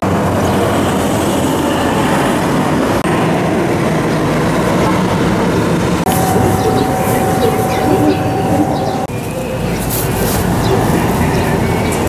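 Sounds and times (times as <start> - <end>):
loud outdoor rumble: 0.0 - 9.3.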